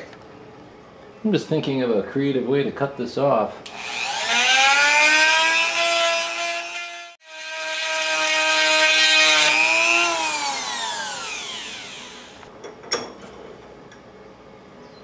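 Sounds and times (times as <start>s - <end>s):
rotary tool whining: 3.7s - 12.5s.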